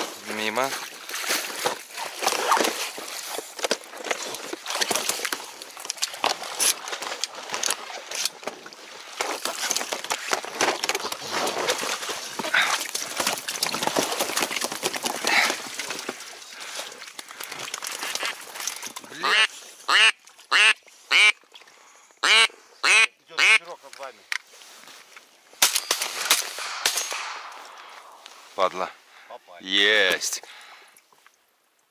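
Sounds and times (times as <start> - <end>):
duck quacks: 19.2 - 21.4, 22.2 - 23.7.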